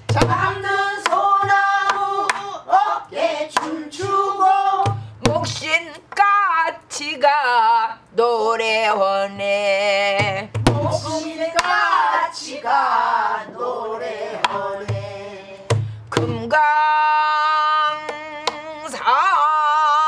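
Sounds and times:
person singing folk song: 0:00.0 - 0:20.0
barrel drum strikes and booms: 0:10.2 - 0:11.1.

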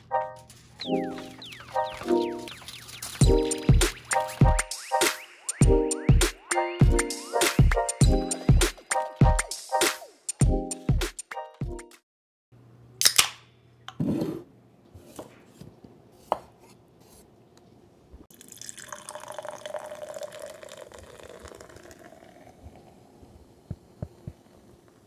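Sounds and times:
beer pouring and fizzing: 0:18.3 - 0:23.2.

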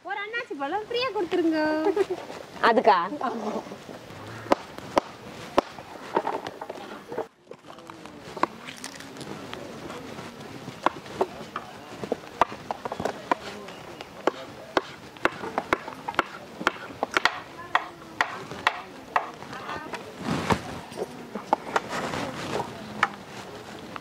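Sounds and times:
sharp irregular knocks: 0:04.4 - 0:06.8, 0:14.2 - 0:19.4.

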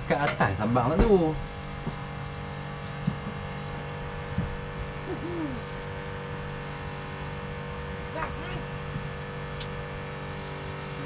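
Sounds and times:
steady engine hum: 0:00.0 - 0:11.0
faint voice: 0:05.1 - 0:05.7.

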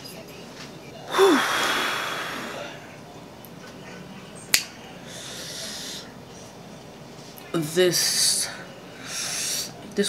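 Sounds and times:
woman breathy exhale: 0:01.1 - 0:02.6.

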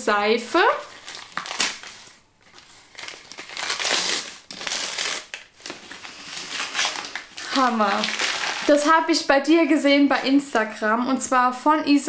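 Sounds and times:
wrapping paper crinkling: 0:00.7 - 0:08.9.

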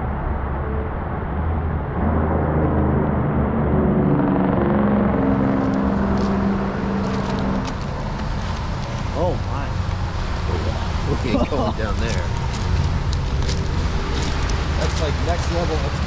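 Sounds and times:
steady low rumble: 0:00.0 - 0:16.0
vehicle engine passing: 0:00.0 - 0:16.0
footsteps on gravel: 0:12.0 - 0:15.6.

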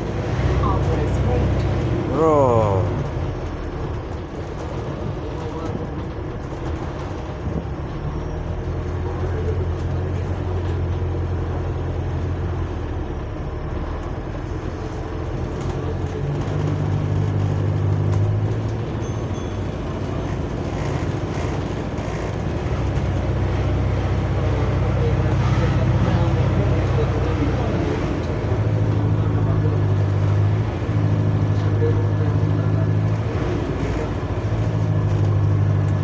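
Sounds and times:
bus engine drone: 0:00.0 - 0:36.0
road noise: 0:00.0 - 0:36.0.

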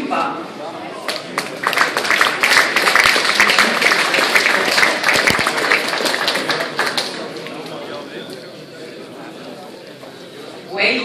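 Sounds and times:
audience applauding: 0:01.0 - 0:08.0.

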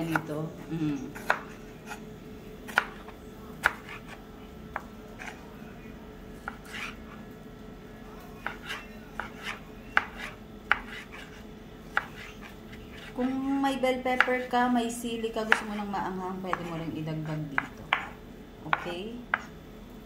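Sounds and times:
knife chopping on wooden board: 0:01.2 - 0:02.0, 0:02.7 - 0:04.1, 0:08.4 - 0:13.2, 0:15.4 - 0:15.7, 0:16.5 - 0:16.8, 0:17.6 - 0:19.5.

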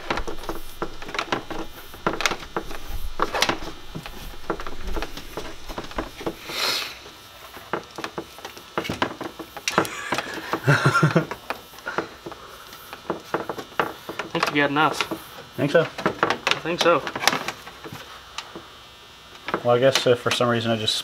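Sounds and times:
swishing rub of wire: 0:00.0 - 0:06.8
wire clicking and rustling: 0:00.0 - 0:18.7.

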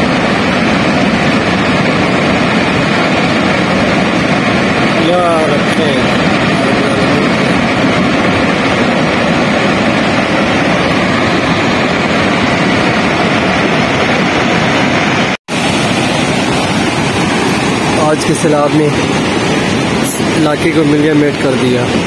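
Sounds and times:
river rushing in flood: 0:00.0 - 0:22.0.

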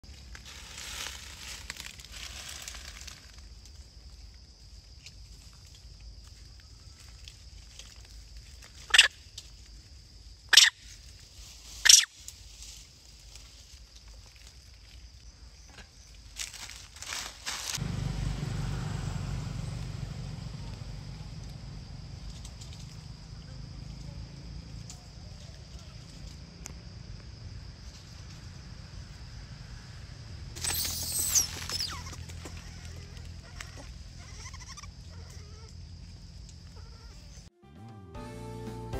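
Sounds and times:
high insect hum: 0:00.0 - 0:37.5
baby monkey squeaking: 0:08.9 - 0:09.1, 0:10.5 - 0:10.8, 0:11.8 - 0:12.1, 0:30.6 - 0:35.7.

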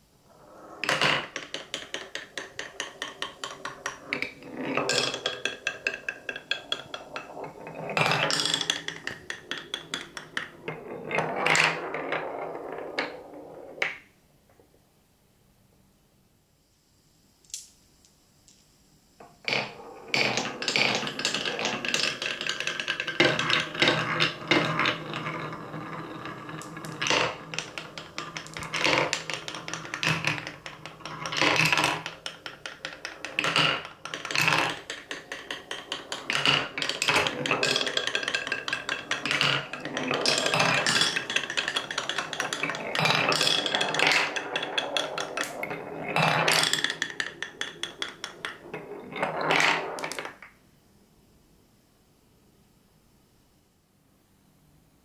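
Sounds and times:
wooden knocks: 0:00.8 - 0:12.0, 0:19.5 - 0:50.5
glass marbles rattling down wooden track: 0:00.8 - 0:14.0, 0:19.5 - 0:50.5.

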